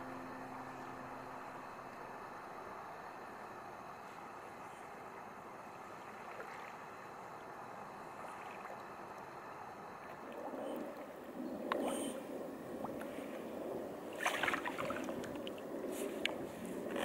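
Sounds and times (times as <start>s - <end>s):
faint hiss: 0.0s - 17.0s
water swishing off paddle blades: 5.8s - 9.3s, 12.8s - 17.0s
water splashing: 5.9s - 7.4s, 8.0s - 13.4s, 14.1s - 16.4s.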